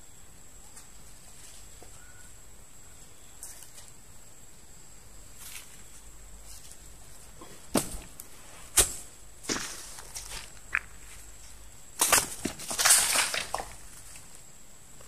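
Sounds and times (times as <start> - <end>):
footsteps crunching through dry bamboo: 5.3 - 14.4
sharp cracks of bamboo: 7.7 - 11.0, 11.9 - 14.3.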